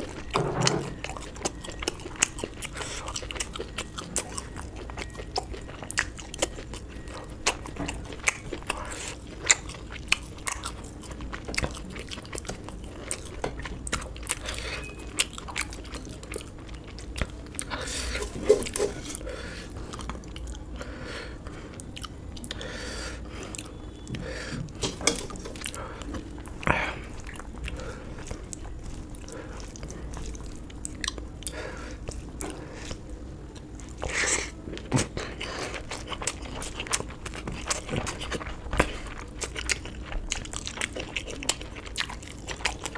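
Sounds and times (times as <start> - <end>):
person chewing with mouth clicks: 0.0 - 42.9.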